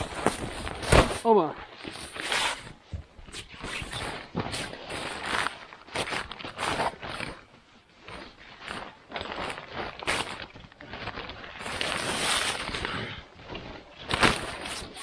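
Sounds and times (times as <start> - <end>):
tent fabric rustling: 0.0 - 15.0.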